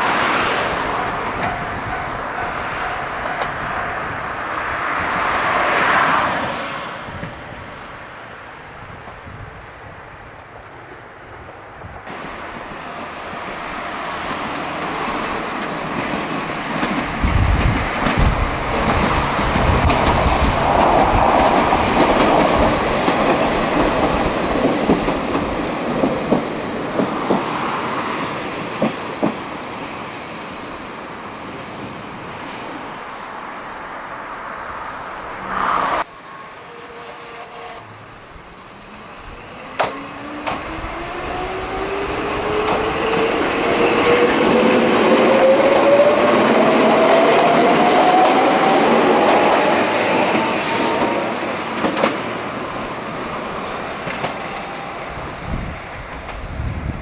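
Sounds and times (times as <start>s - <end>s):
train wheels clattering: 15.5s - 27.7s.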